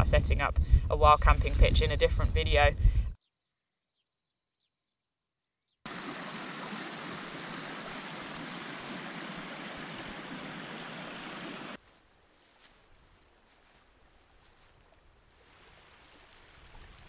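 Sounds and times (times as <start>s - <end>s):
river rushing over stones: 5.9s - 11.8s.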